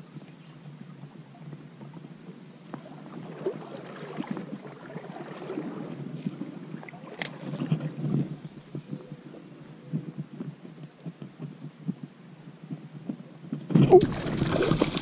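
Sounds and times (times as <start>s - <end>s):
creek water sloshing: 2.8s - 8.7s, 13.8s - 15.0s.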